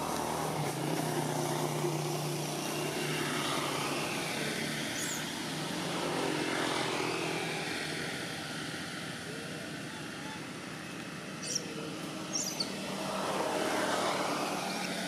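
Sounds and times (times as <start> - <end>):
engine droning: 0.0 - 15.0
high chirp: 12.3 - 12.8.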